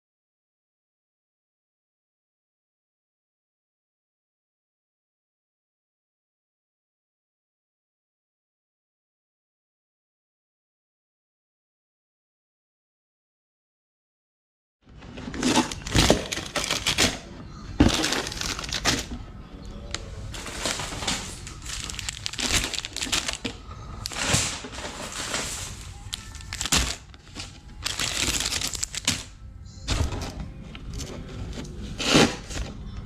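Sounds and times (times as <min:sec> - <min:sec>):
plastic wrappers crinkling: 0:15.1 - 0:19.2, 0:19.8 - 0:29.4
background music: 0:15.2 - 0:33.0.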